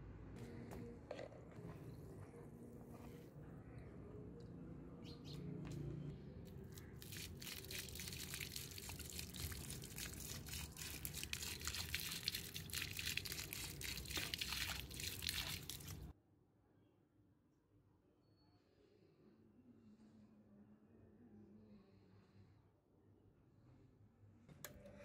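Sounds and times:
drips falling into liquid: 0:06.7 - 0:16.1
water splashing onto concrete: 0:06.7 - 0:16.1.

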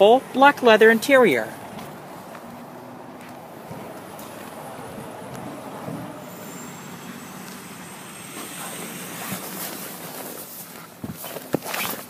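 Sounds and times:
car engine idling: 0:00.0 - 0:11.0
handling rustle: 0:09.2 - 0:12.0.

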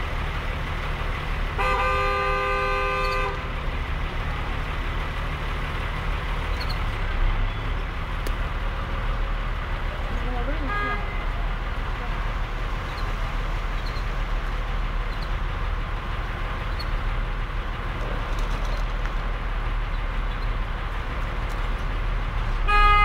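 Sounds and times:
car horn: 0:01.6 - 0:03.5, 0:10.6 - 0:11.3, 0:22.6 - 0:23.0.

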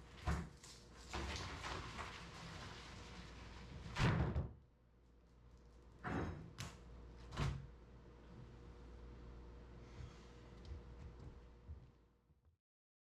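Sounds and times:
faint steady hum: 0:04.8 - 0:12.3.

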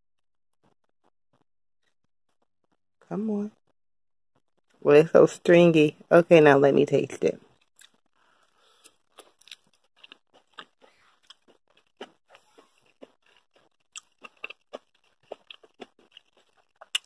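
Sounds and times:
person chewing crunchy food: 0:07.5 - 0:17.0.

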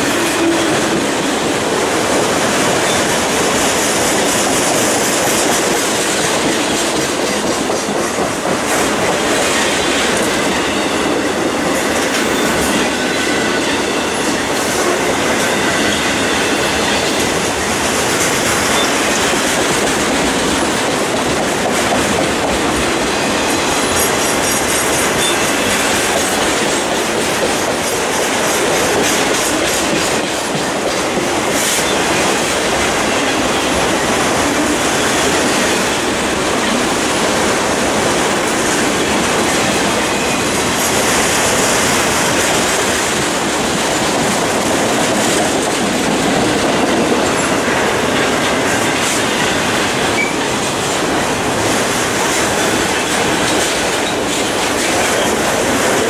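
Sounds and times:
train wheels clacking over rail joints: 0:00.0 - 0:56.0.

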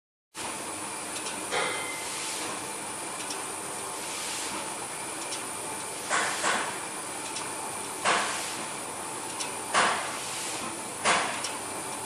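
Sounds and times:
paper collator airy hiss: 0:02.0 - 0:02.7, 0:03.9 - 0:04.8, 0:05.9 - 0:06.8, 0:08.0 - 0:08.8, 0:09.7 - 0:11.9
faint regular clicks: 0:03.2 - 0:03.4, 0:07.2 - 0:08.3.

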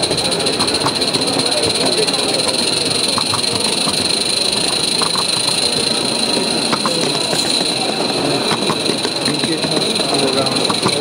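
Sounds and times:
model locomotive running whine: 0:00.0 - 0:11.0
wheels clicking on rails: 0:00.0 - 0:11.0.

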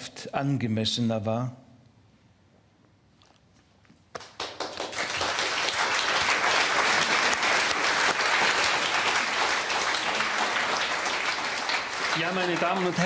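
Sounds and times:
audience applause: 0:04.2 - 0:13.0.

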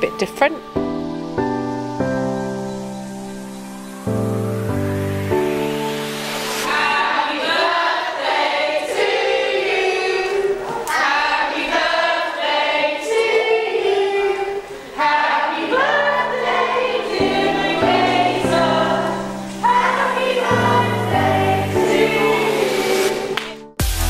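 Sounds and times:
choir singing: 0:05.3 - 0:23.7
music with bass line: 0:23.8 - 0:24.0.

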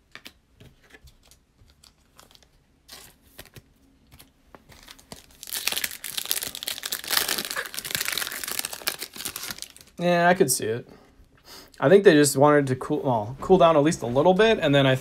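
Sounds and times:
wrapper tearing and crumpling: 0:01.9 - 0:10.0.

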